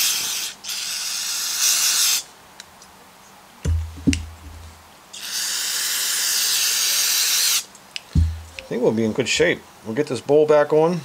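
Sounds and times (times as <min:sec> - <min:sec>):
short low thump: 0:03.7 - 0:04.7, 0:08.1 - 0:08.7.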